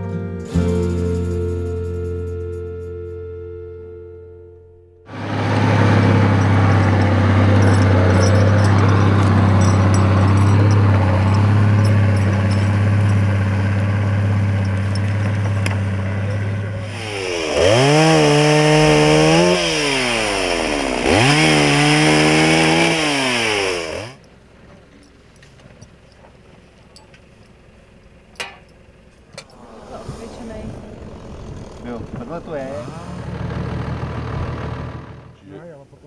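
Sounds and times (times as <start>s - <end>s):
low engine hum: 5.1s - 22.1s, 23.9s - 35.4s
chainsaw revving: 5.1s - 24.2s, 31.0s - 35.4s.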